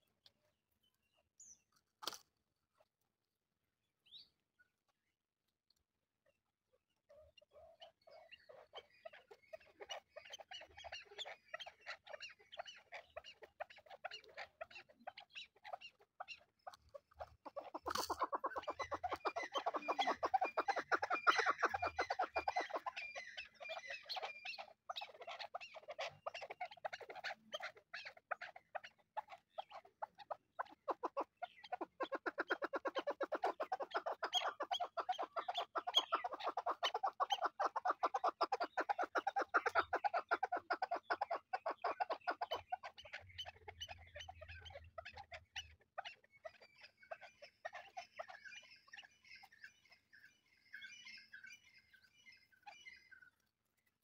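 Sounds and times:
partridges calling: 0:07.1 - 0:53.4.

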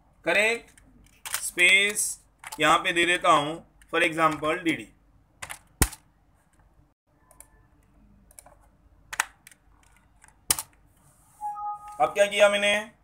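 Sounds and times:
computer keyboard keystrokes: 0:08.3 - 0:10.8.

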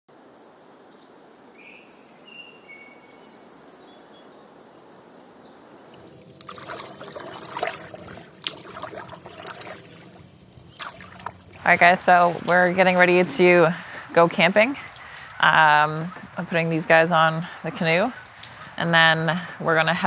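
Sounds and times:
canoe paddle splashing water: 0:05.9 - 0:16.5.

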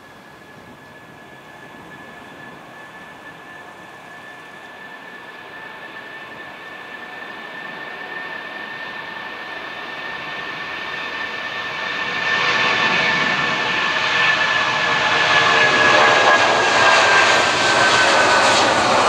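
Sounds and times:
high fan whine: 0:00.0 - 0:07.8
jet engines running: 0:00.0 - 0:19.0.

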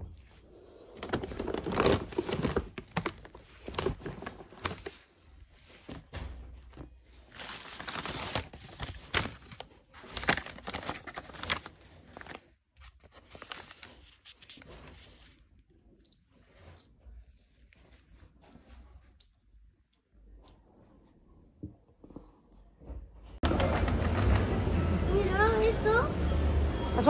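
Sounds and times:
plastic bags crinkling: 0:00.8 - 0:15.5
books knocking and clicking: 0:23.4 - 0:24.6.

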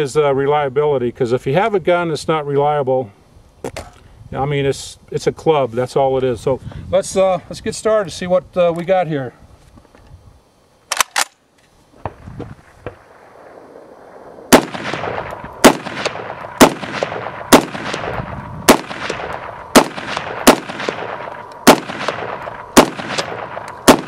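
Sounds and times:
rifle shots with echo: 0:12.8 - 0:24.0.

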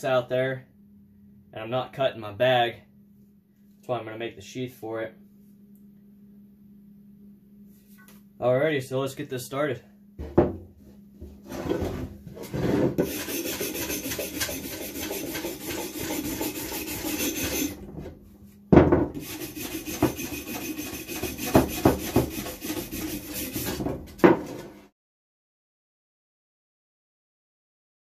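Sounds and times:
wire brush scrubbing metal: 0:13.0 - 0:17.8, 0:19.2 - 0:23.9.

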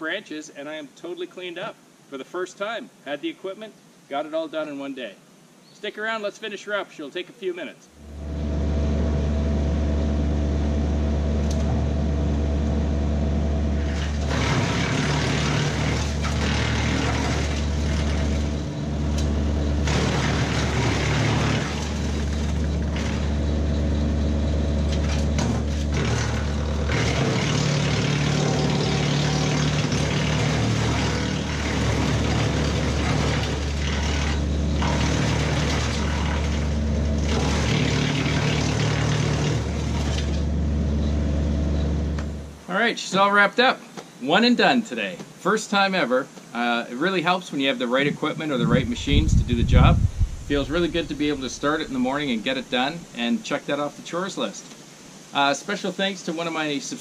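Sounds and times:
wood chipper humming: 0:08.0 - 0:42.6, 0:48.0 - 0:53.2
wood chipper chipping branches: 0:08.1 - 0:42.5, 0:48.0 - 0:53.1.

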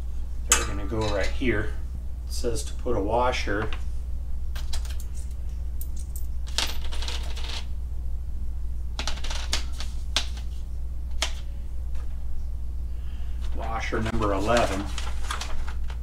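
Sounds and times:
steady low hum: 0:00.0 - 0:16.0
metal hardware clinking: 0:00.5 - 0:01.4.

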